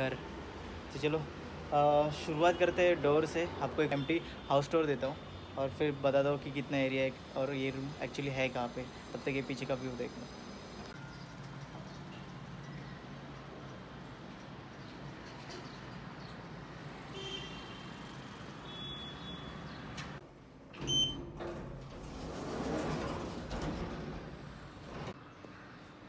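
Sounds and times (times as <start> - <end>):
distant city traffic hum: 0.0 - 26.0
short electronic lift beep: 18.7 - 19.6, 20.8 - 21.2
lift doors sliding: 18.8 - 25.2.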